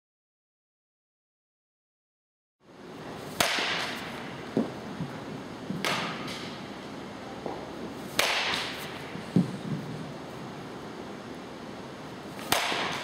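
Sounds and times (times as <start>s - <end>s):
bat cracking baseball: 3.2s - 10.0s, 12.3s - 13.0s.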